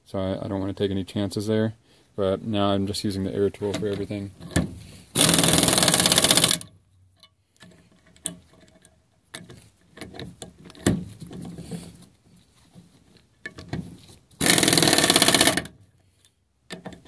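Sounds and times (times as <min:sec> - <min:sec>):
pneumatic impact wrench hammering: 0:05.1 - 0:06.7, 0:14.4 - 0:15.8.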